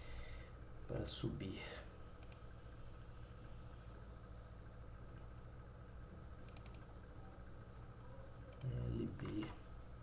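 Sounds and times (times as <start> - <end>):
steady low hum: 0.0 - 10.0
faint mouse clicks: 2.2 - 2.4, 6.4 - 6.9, 8.5 - 9.0.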